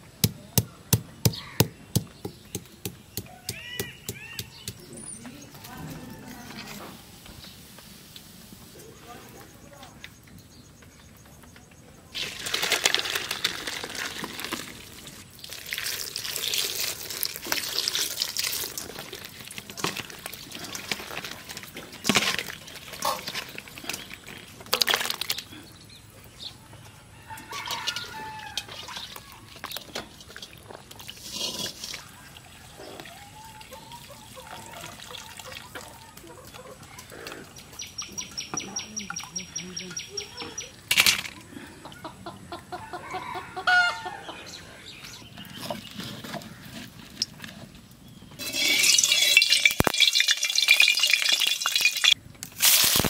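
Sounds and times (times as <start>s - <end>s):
water pouring into steel bowl: 12.2s - 21.2s, 48.4s - 52.2s
metal vessels knocking: 48.4s - 52.2s.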